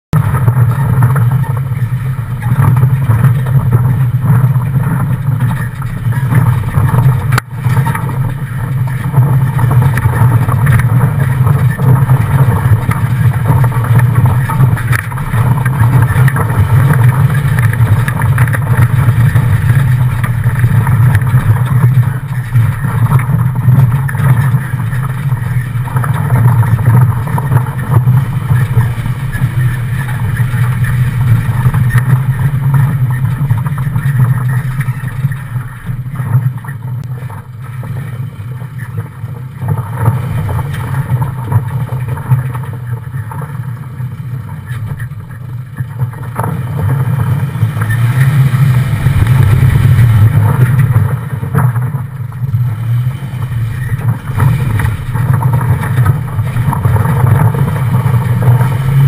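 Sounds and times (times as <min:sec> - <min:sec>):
vehicle engine and tyres droning: 0:00.0 - 0:59.0.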